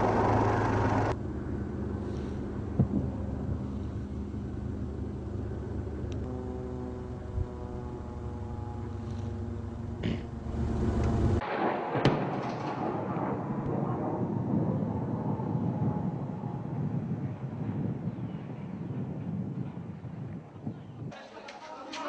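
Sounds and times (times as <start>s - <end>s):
tracked vehicle engine droning: 0.0s - 11.4s
rumbling explosion: 2.1s - 4.6s, 11.4s - 20.0s
sharp crack: 11.0s - 14.3s.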